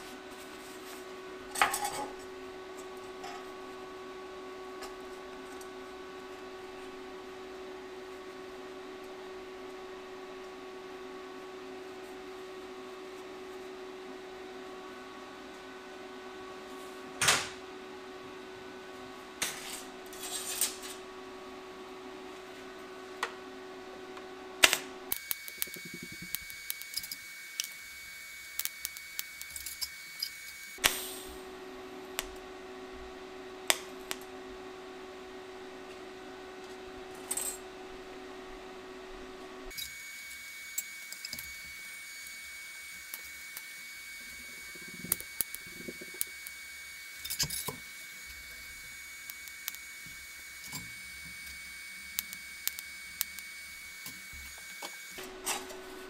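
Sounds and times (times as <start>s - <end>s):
steady hum: 0.0s - 40.4s, 41.2s - 56.0s
metal parts and tools clanking: 1.5s - 2.2s.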